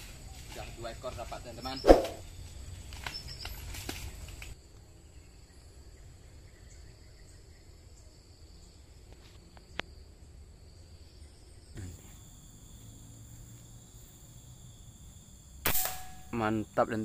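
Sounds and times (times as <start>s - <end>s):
insects shrilling: 0.0s - 4.6s, 10.8s - 17.0s.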